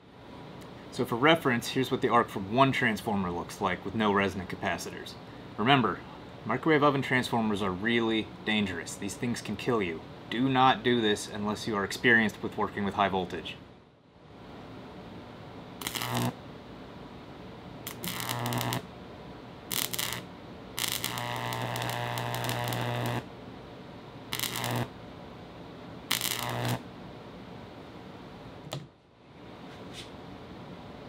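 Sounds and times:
low electrical hum: 0.0s - 31.0s
high-voltage arc buzzing: 15.8s - 16.4s, 17.8s - 18.9s, 19.7s - 23.3s, 24.2s - 25.0s, 26.0s - 26.9s.

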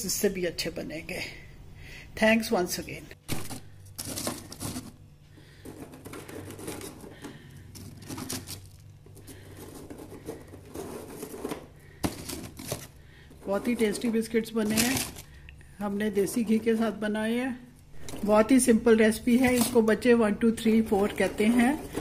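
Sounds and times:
biscuits clicking and scraping: 3.2s - 16.8s, 20.8s - 22.0s.

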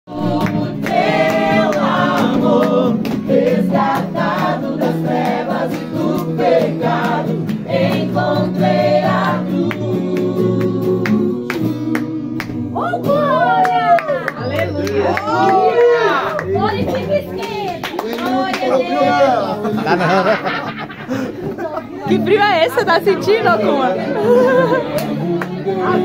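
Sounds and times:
group singing worship song: 0.1s - 13.9s, 18.2s - 21.5s, 22.5s - 26.0s.

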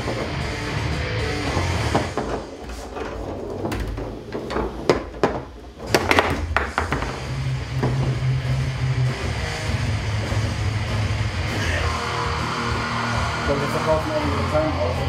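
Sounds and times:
table football ball knocking: 1.5s - 8.3s.

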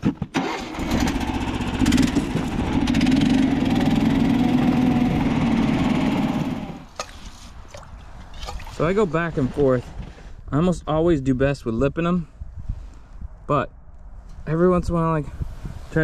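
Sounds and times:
power ice auger boring: 0.4s - 6.8s.

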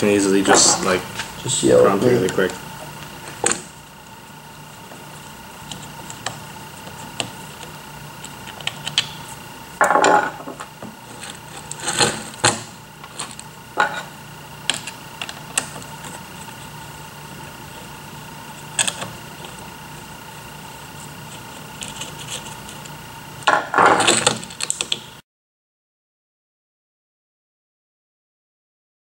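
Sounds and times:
faint steady hum: 0.0s - 25.2s
parts clattering: 8.7s - 14.1s.

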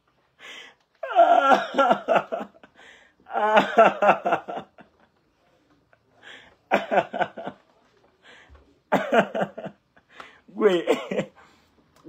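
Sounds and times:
breathing sounds: 0.3s - 0.9s, 2.7s - 3.3s, 6.1s - 6.7s, 8.2s - 8.6s, 10.1s - 10.5s
man laughing: 1.1s - 2.7s, 3.3s - 5.1s, 6.7s - 7.6s, 8.9s - 9.8s, 10.6s - 11.4s.

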